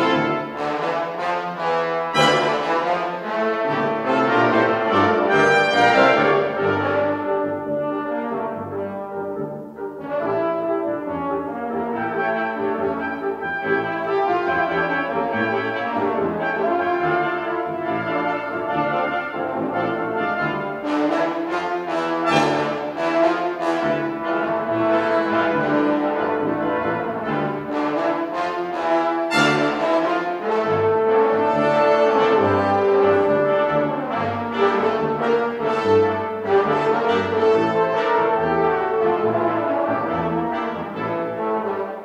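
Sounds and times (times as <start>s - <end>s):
brass ensemble playing chords: 0.0s - 42.0s.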